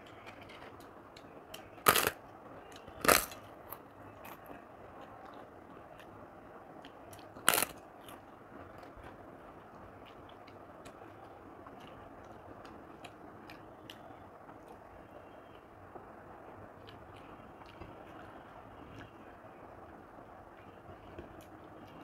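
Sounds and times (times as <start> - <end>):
papadum crunching: 0.0 - 6.1, 6.8 - 8.2
faint chewing clicks: 0.0 - 15.7, 16.5 - 19.7, 20.5 - 22.0.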